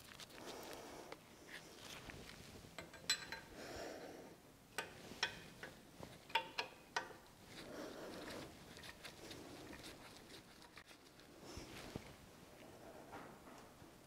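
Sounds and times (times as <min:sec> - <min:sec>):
soft rustling: 0:00.0 - 0:02.8, 0:07.4 - 0:13.9.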